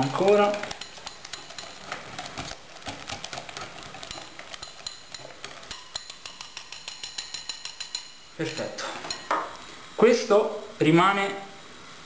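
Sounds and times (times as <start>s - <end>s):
whisk clicking against glass bowl: 0.0s - 9.4s.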